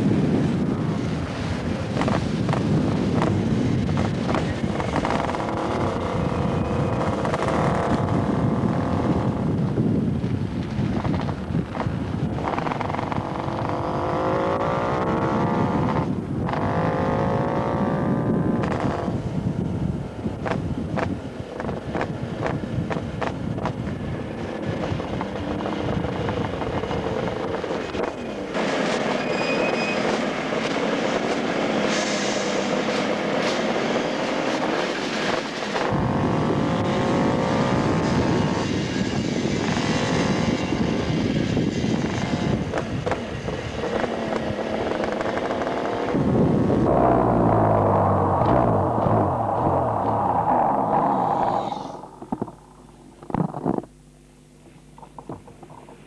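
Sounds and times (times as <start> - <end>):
motorcycle passing close: 0.0 - 9.6, 10.9 - 19.4, 35.8 - 53.2
motorcycles revving: 0.0 - 19.5, 20.2 - 29.3, 30.0 - 54.0.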